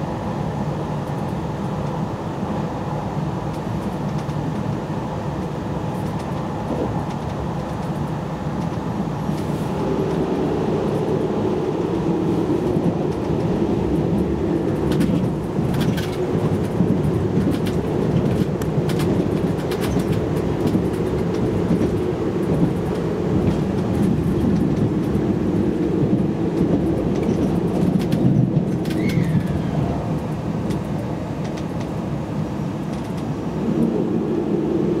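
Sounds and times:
train wheels and motors rumbling: 0.0s - 35.0s
high falling squeal: 29.0s - 29.6s.

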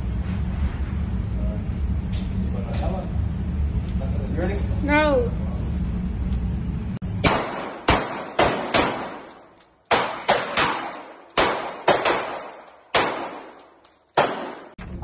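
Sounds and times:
handgun shots echoing indoors: 7.2s - 14.8s.

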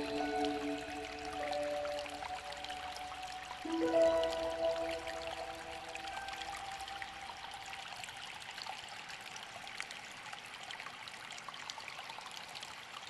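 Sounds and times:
held music note: 0.0s - 7.3s
water drips and splashes: 0.0s - 13.0s
water trickling: 0.0s - 13.0s.

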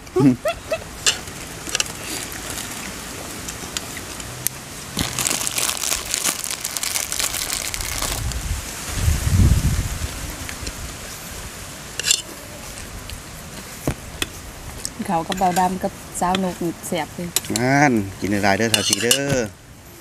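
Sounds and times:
plastic bag crinkling: 1.2s - 3.8s, 5.0s - 8.4s.

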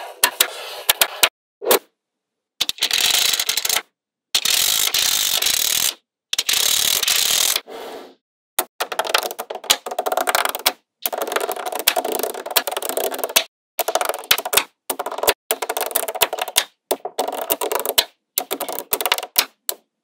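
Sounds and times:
magnetic balls clicking: 4.4s - 7.6s, 8.6s - 19.9s.

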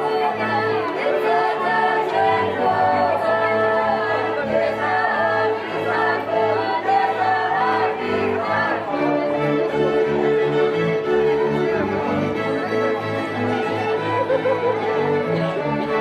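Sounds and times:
fiddles playing a drone: 0.0s - 16.0s
group of voices singing: 0.0s - 16.0s.

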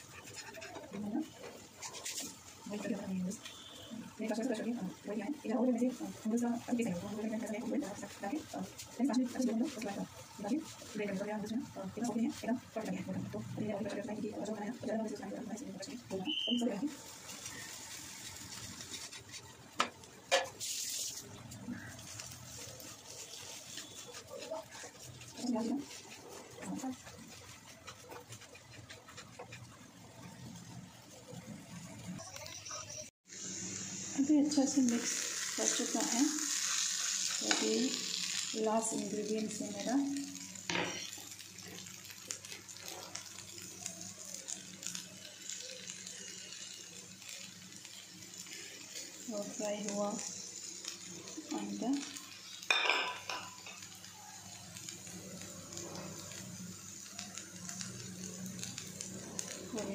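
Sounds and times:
noodles stirred with chopsticks: 0.0s - 32.0s.

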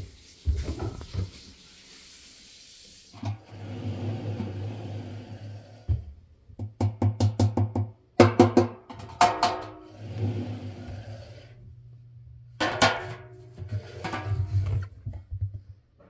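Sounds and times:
metal washing machine drum clanking: 8.2s - 10.0s, 12.6s - 14.8s.

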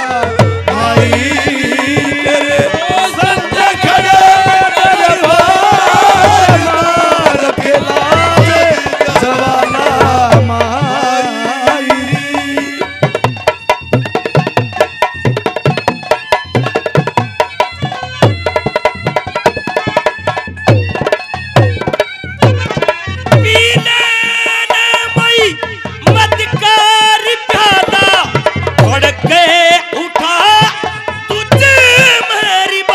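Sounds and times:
person singing: 0.0s - 13.2s
hand drum beat: 0.0s - 32.9s.

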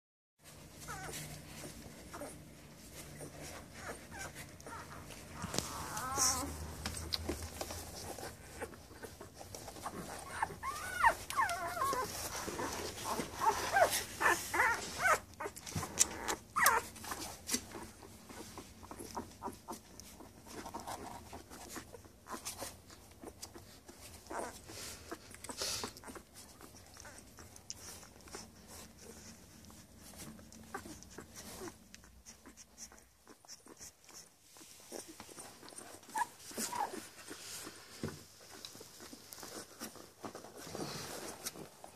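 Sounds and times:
puppies squeaking and whimpering: 0.6s - 41.1s
puppies suckling clicks: 1.1s - 40.7s.

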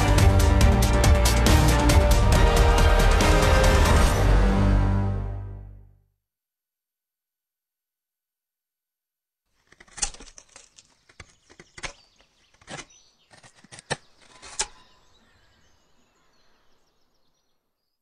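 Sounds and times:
sharp cracks and snaps: 9.6s - 14.8s.

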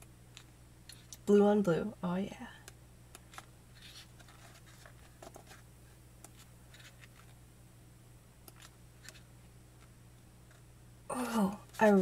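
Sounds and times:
low steady hum: 0.0s - 12.0s
photo book pages turning: 3.3s - 5.6s, 6.4s - 7.4s.

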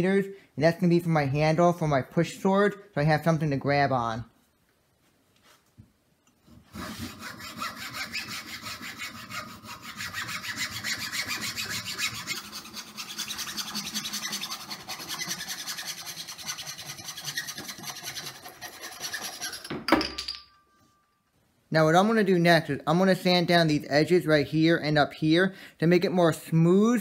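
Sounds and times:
hacksaw cutting wood: 6.5s - 19.7s.

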